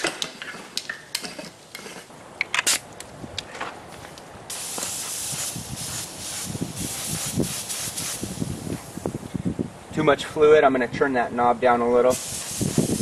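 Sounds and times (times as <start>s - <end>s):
spray gun hissing: 4.5s - 9.2s, 12.1s - 13.0s.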